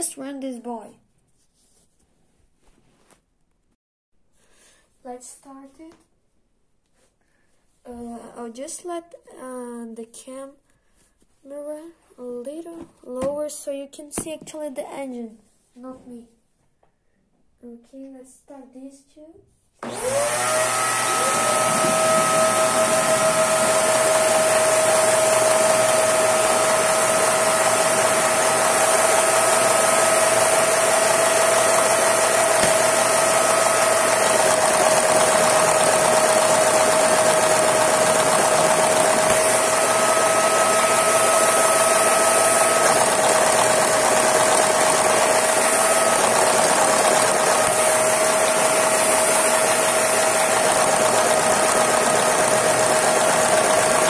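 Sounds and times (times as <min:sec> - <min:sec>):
vacuum cleaners whining: 0:19.8 - 0:54.0.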